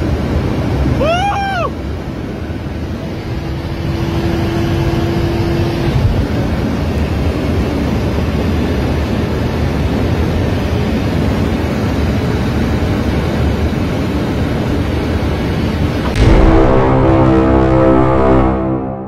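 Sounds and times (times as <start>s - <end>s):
car engine running hard: 0.0s - 18.7s
wind and road noise: 0.0s - 18.8s
music: 16.1s - 19.0s.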